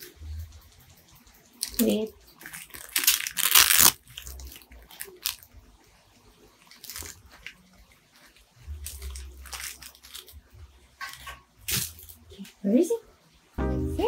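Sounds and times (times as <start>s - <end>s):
plush toy crinkly rustling: 1.7s - 5.5s, 6.6s - 10.4s.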